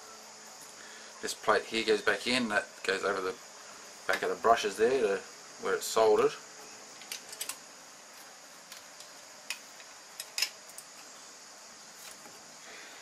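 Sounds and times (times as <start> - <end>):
faint high hiss: 0.0 - 13.0
small metal parts clicking: 7.0 - 7.6, 9.0 - 11.0.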